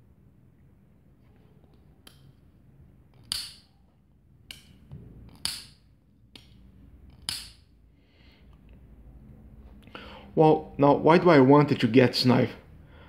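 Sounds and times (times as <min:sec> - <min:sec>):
folding knife blade snapping open: 0:03.2 - 0:03.6.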